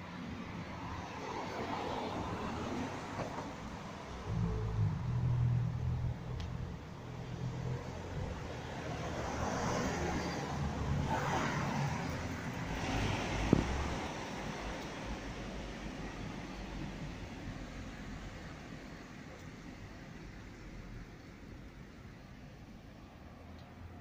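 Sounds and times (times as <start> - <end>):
cars passing: 0.0 - 24.0
low engine rumble: 3.9 - 9.2.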